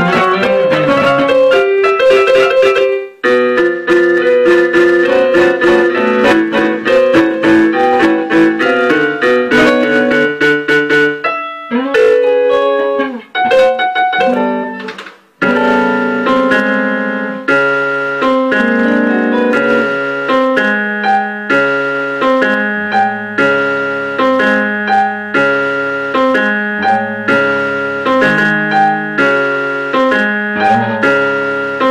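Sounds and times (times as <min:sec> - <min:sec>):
electric keyboard playing: 0:00.0 - 0:31.9.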